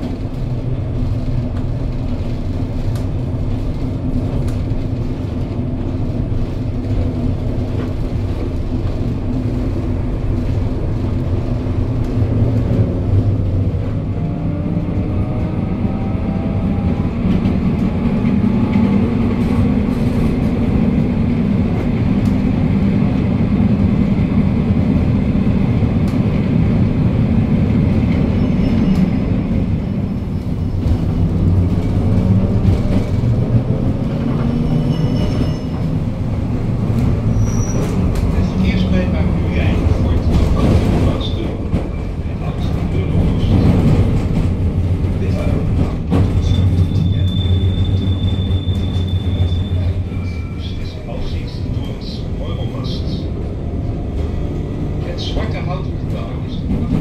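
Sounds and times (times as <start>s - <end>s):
tram wheels rumbling on rails: 0.0s - 57.0s
faint high squeal: 34.5s - 35.8s, 46.4s - 50.9s.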